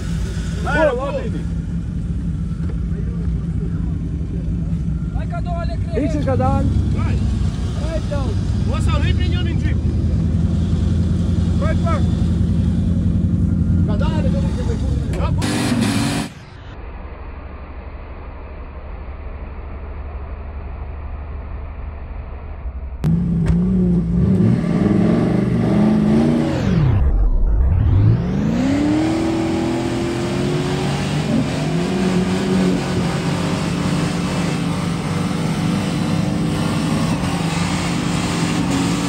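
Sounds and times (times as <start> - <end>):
engine revving hard: 15.4 - 16.5, 23.1 - 27.1, 27.7 - 39.0.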